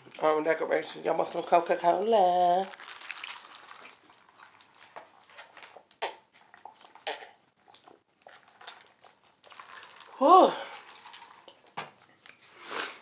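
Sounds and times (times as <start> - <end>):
person swallowing drink: 5.7 - 11.6
loud gulps: 6.0 - 8.0.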